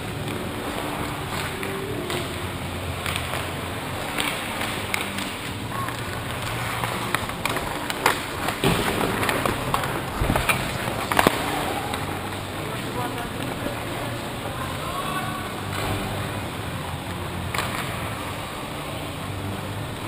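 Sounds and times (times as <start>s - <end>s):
skate blades scraping ice: 0.0s - 19.4s
hockey sticks knocking puck: 0.1s - 14.5s, 17.4s - 18.4s.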